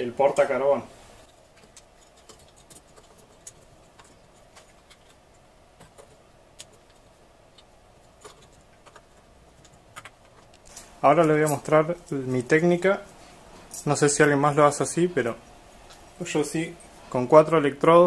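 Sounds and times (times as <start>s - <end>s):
faint room noise: 0.0s - 18.0s.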